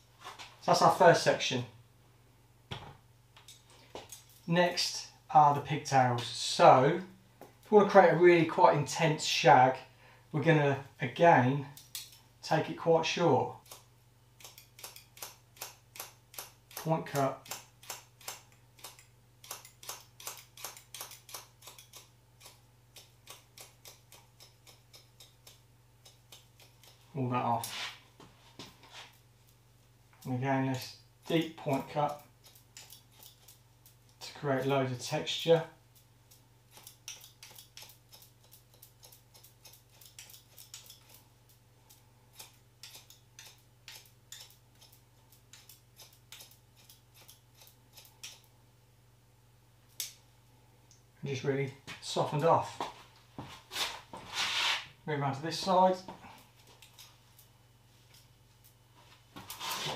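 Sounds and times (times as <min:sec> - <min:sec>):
scissors snipping: 0:14.4 - 0:27.0, 0:30.7 - 0:34.7, 0:36.7 - 0:41.2, 0:41.9 - 0:48.5, 0:56.6 - 0:57.5.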